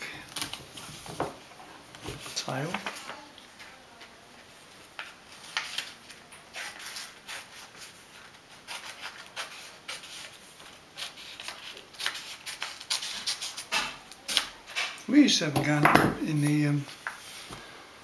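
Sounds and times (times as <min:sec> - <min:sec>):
paper rustling and creasing: 0:00.2 - 0:04.1, 0:04.7 - 0:14.7.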